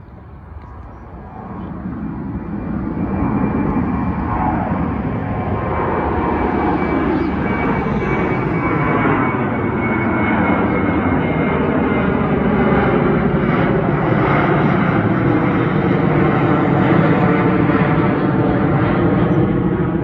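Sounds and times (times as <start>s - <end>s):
faint high whine: 0.0s - 13.8s
jet engine rumble: 0.0s - 20.0s.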